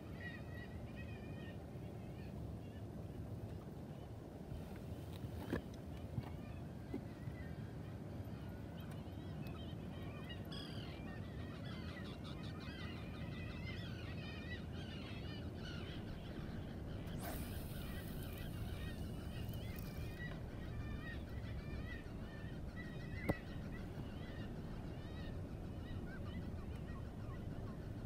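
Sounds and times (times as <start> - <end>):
flock of birds calling: 9.9 - 28.0
hiss: 17.1 - 19.0.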